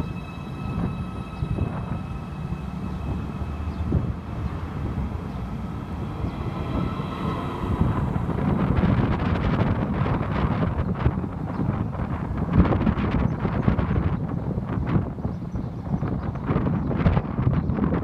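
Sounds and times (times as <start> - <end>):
electric train whine: 0.0 - 13.9
train rumble: 0.0 - 18.0
wind on microphone: 0.0 - 18.0.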